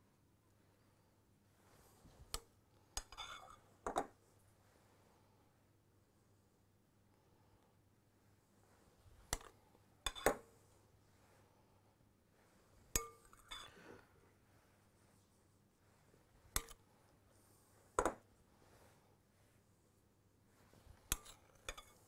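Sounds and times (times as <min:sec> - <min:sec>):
metal spoon clinking on glass bowl: 0:03.0 - 0:03.6, 0:13.0 - 0:13.7, 0:16.6 - 0:16.8, 0:21.1 - 0:22.0
spoon scraping: 0:03.0 - 0:03.7, 0:12.9 - 0:13.9, 0:16.5 - 0:16.8, 0:20.8 - 0:22.0.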